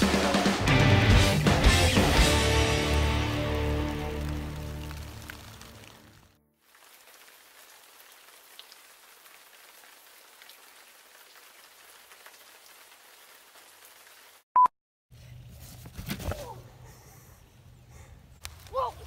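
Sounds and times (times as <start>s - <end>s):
light rain on dead leaves: 2.4s - 14.4s
small drips: 3.3s - 14.3s.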